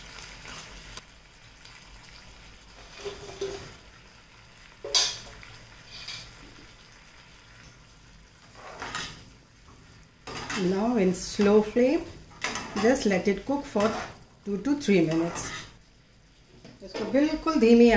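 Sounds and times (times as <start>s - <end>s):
vegetables frying in a pan: 0.0s - 17.9s
spatula scraping a pan: 2.8s - 3.8s, 5.8s - 6.4s, 8.4s - 9.2s, 12.3s - 15.8s.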